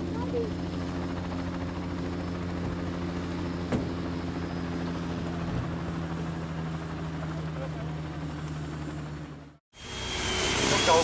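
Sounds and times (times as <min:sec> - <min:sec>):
engine droning: 0:00.0 - 0:11.0
dull thump: 0:03.7 - 0:04.0.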